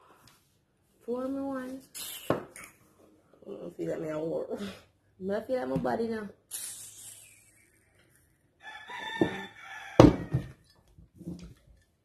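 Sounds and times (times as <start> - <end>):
rooster crowing: 8.6 - 10.6
hard knock on table: 10.0 - 10.5.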